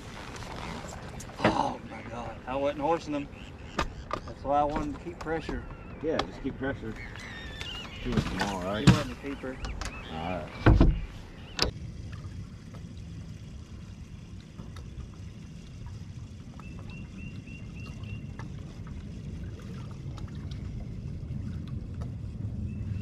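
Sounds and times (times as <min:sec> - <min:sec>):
water lapping against hull: 0:00.0 - 0:23.0
low rumble: 0:09.5 - 0:23.0.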